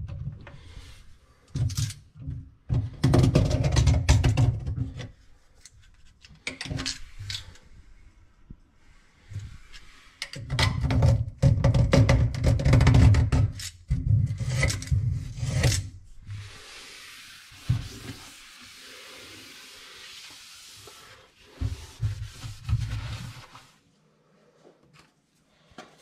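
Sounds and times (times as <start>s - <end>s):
finger scraping inside drain: 14.0s - 23.8s
steady hiss: 16.3s - 21.6s.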